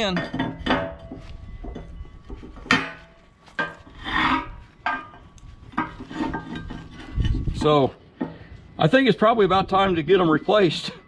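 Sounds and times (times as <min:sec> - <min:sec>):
steel plates knocking: 0:00.0 - 0:08.4
steel plates scraping: 0:00.0 - 0:09.0.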